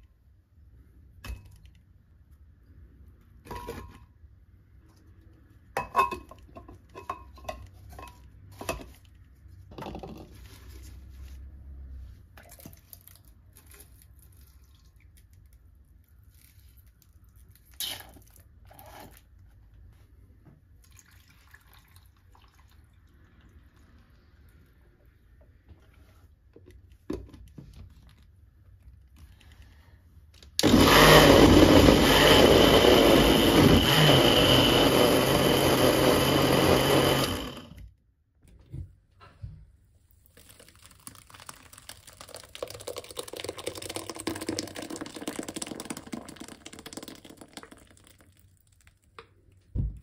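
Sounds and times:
blender running: 30.6s - 37.8s
liquid straining through cloth: 40.1s - 49.7s.

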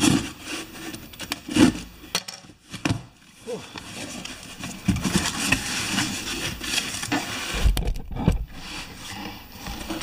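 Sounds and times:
cardboard flaps scraping: 2.6s - 10.0s.

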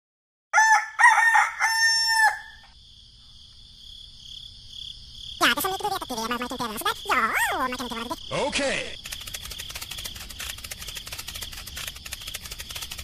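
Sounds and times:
rooster crowing: 0.5s - 2.7s
crickets chirring: 1.3s - 13.0s.

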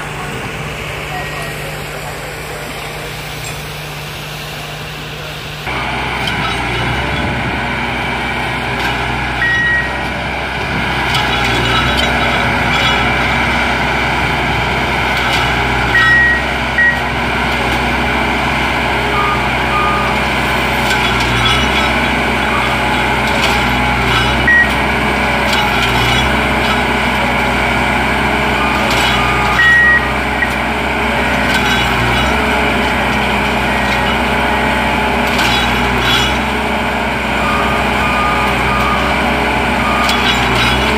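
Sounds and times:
diesel engine running: 0.0s - 40.9s
short high warning beeps: 9.4s - 10.0s, 15.9s - 17.1s, 19.1s - 20.2s, 28.6s - 30.6s.

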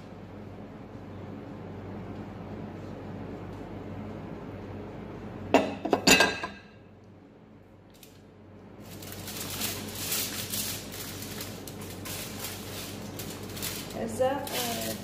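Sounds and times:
ceramic plate clinking: 5.6s - 6.7s
aluminium foil crinkling: 7.9s - 15.0s.

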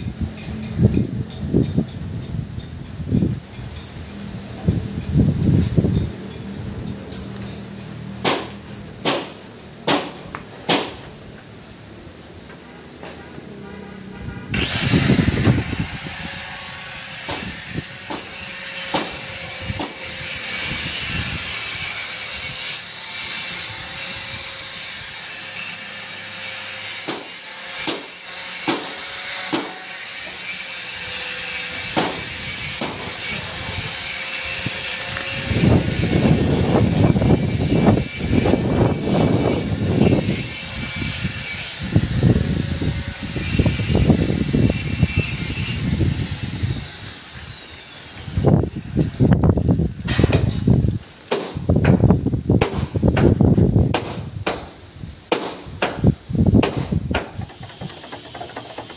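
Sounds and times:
tool rasping against metal: 0.0s - 10.8s, 13.8s - 47.4s, 57.2s - 58.9s
power tool whine: 14.2s - 51.1s, 57.2s - 58.9s.

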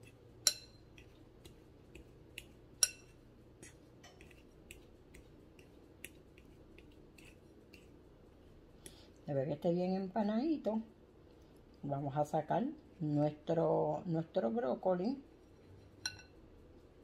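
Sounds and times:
fork tapping glass bowl: 0.0s - 7.9s, 16.0s - 16.4s.

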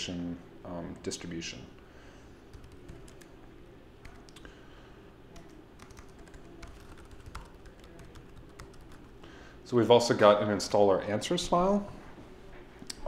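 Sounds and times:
keyboard typing clicks: 5.4s - 9.0s.

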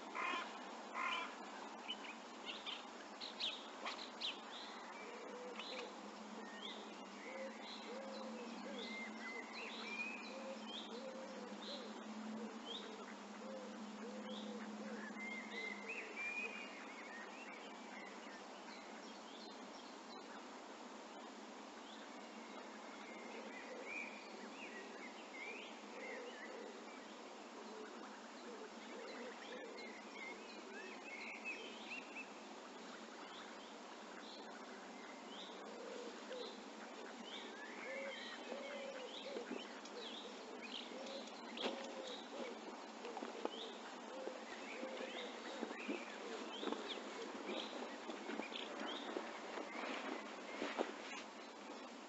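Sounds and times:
steady outdoor hiss: 0.0s - 52.0s
small birds chirping: 14.2s - 52.0s.

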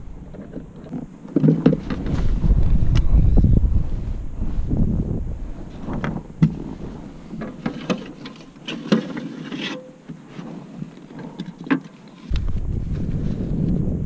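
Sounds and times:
wind rumble on microphone: 0.0s - 7.8s, 12.3s - 14.0s.

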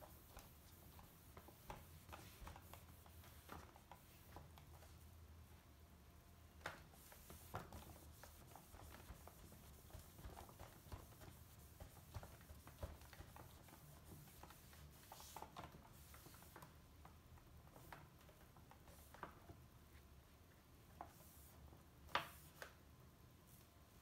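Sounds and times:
low room hum: 0.0s - 24.0s
cloth rubbing on screen: 6.8s - 16.7s.

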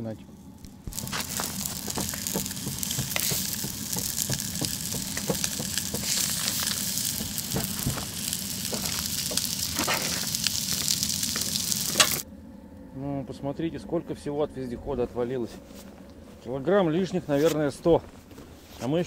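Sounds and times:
spitting crackles: 0.6s - 12.2s
meat sizzling on a griddle: 0.7s - 12.2s.

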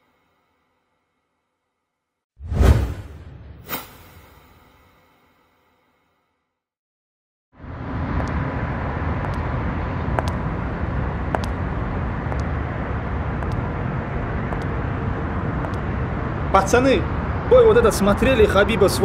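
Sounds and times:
outdoor traffic rumble: 7.5s - 19.0s.

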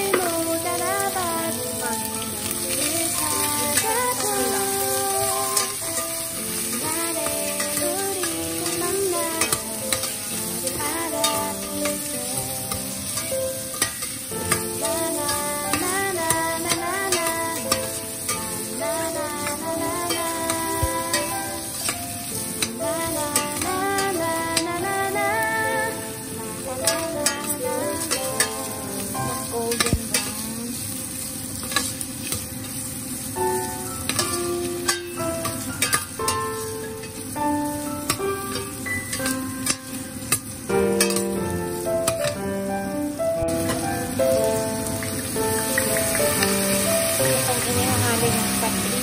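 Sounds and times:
aromatics sizzling in oil: 0.0s - 49.0s
background music: 0.0s - 49.0s
metal spoon stirring and scraping: 5.5s - 12.0s, 13.1s - 14.6s, 34.1s - 36.2s.

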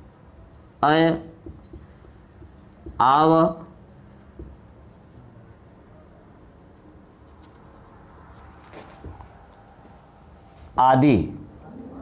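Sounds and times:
cricket chirping: 0.0s - 12.0s
marker strokes on whiteboard: 1.4s - 4.7s, 7.2s - 10.8s.

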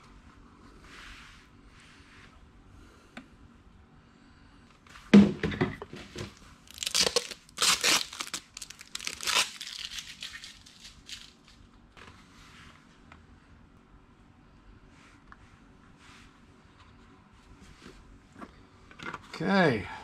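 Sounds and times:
plastic crinkling and tearing: 6.6s - 11.6s.

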